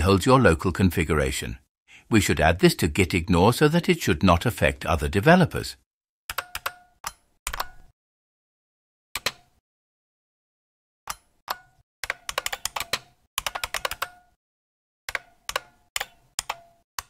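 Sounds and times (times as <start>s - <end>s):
computer keyboard typing: 6.3s - 6.8s, 12.0s - 14.2s, 15.1s - 16.6s.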